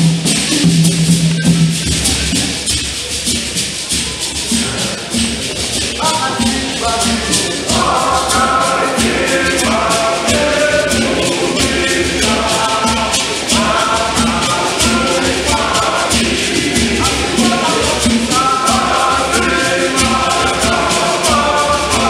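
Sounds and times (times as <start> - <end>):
hand drum beating: 0.0 - 22.0
gourd rattles shaken: 0.5 - 22.0
men's choir singing a hymn: 4.5 - 22.0.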